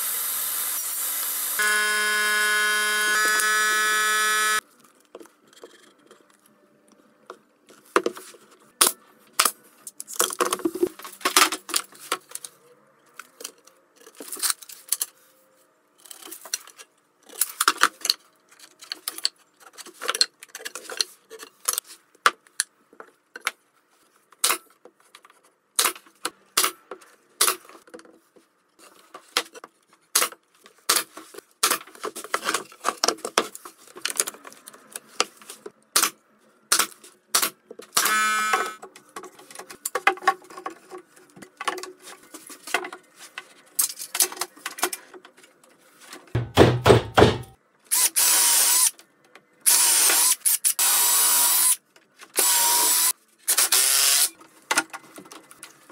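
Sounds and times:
cordless drill boring into wood: 0.0s - 4.6s, 38.0s - 38.8s, 47.9s - 48.9s, 49.7s - 51.8s, 52.4s - 54.3s
power drill running: 0.0s - 4.6s, 47.9s - 48.9s, 49.7s - 51.8s, 52.4s - 54.3s
wood and clamps knocking: 46.4s - 47.6s.

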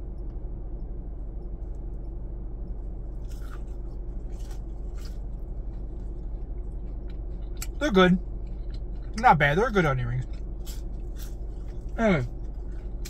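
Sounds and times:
steady low hum: 0.0s - 13.0s
crisp crunches of biting: 3.2s - 7.8s, 10.1s - 13.0s.

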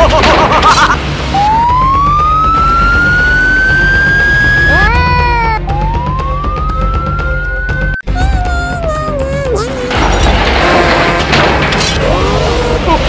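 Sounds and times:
siren wailing: 1.3s - 8.0s.

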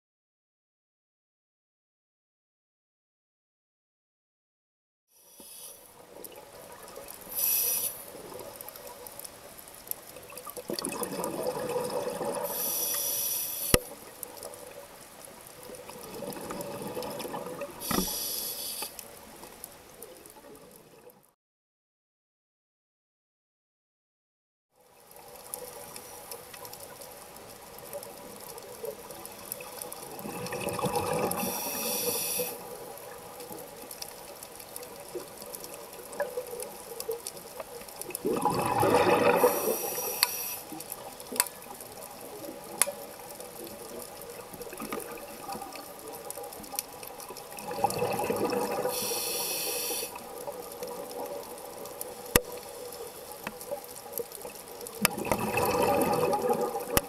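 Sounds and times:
regulator hiss: 5.2s - 5.9s, 7.2s - 8.2s, 12.4s - 14.0s, 17.8s - 19.0s, 31.4s - 32.7s, 39.4s - 40.8s, 48.8s - 50.2s
small clicks and crackles: 5.2s - 21.3s, 24.8s - 57.0s
faint steady hum: 25.0s - 54.5s
bubbling exhalations: 38.2s - 40.0s, 55.1s - 57.0s.

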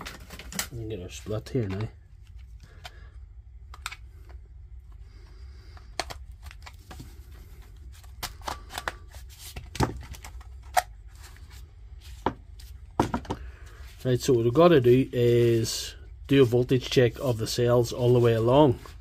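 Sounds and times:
plastic case clicking and cracking: 3.7s - 4.0s.

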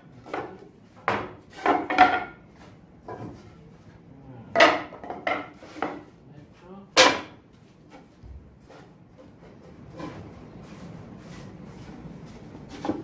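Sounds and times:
wooden boards knocking on metal table: 0.2s - 2.4s, 4.5s - 6.0s, 7.0s - 7.4s.

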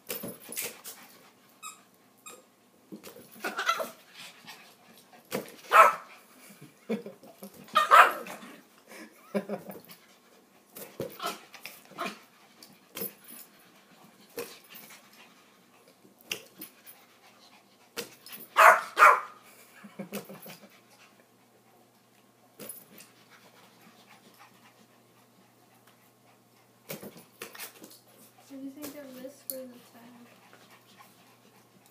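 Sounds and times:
dogs panting and scuffling: 0.0s - 31.9s
dog barking: 5.7s - 6.1s, 7.8s - 8.2s, 18.6s - 19.4s.

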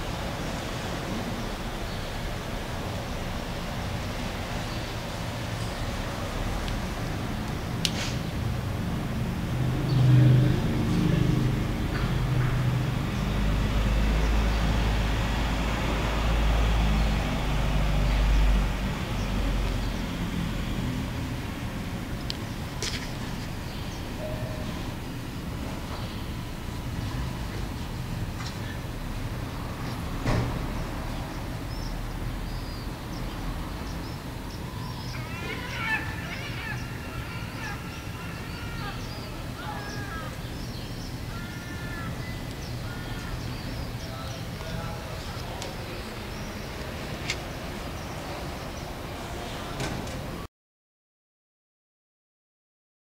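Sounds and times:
birds chirping and calling: 31.7s - 48.9s.

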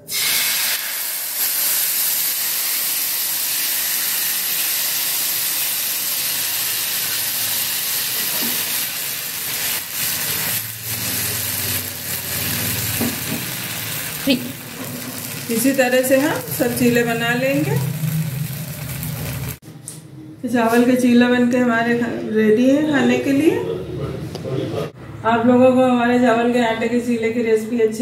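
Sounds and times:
batter sizzling on a hot pan: 0.1s - 19.6s.

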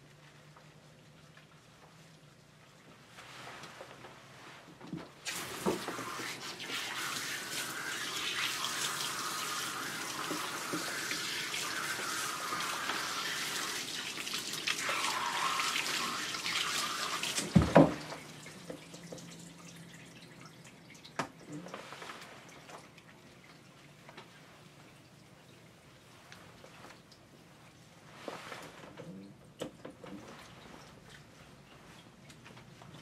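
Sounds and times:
water spray hissing: 5.3s - 17.5s
faint water drips: 5.3s - 33.0s.

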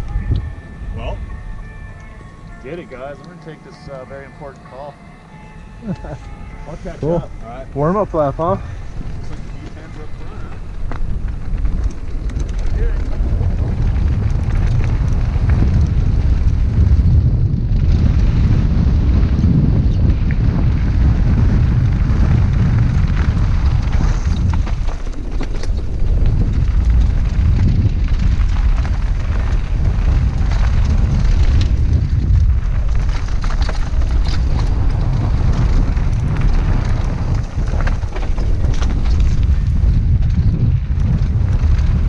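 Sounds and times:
wind buffeting microphone: 0.0s - 42.0s
bike rattling and clicking: 5.4s - 42.0s
tyres crunching over rock: 21.0s - 42.0s.

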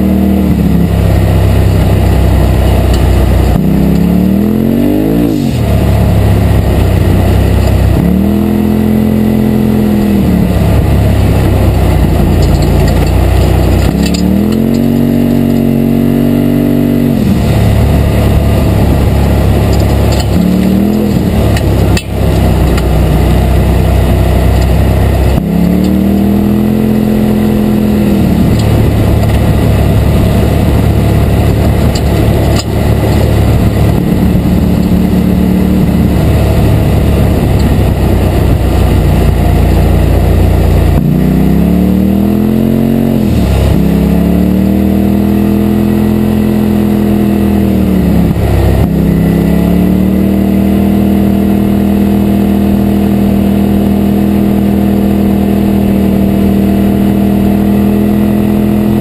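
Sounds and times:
engine revving: 0.0s - 59.0s.

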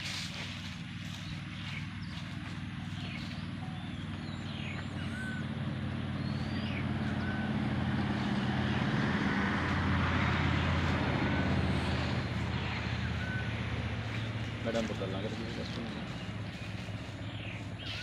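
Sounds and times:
vehicle engine running: 0.0s - 18.0s
bird short call: 17.8s - 18.0s.

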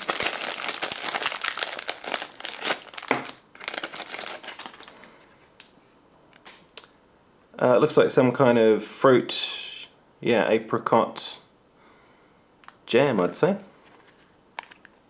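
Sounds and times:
plastic packaging crinkling: 0.0s - 5.3s.

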